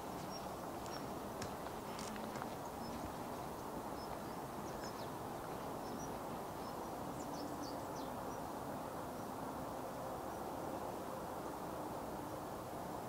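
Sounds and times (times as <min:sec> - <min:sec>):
small birds chirping: 0:00.0 - 0:08.5
outdoor background noise: 0:00.0 - 0:13.0.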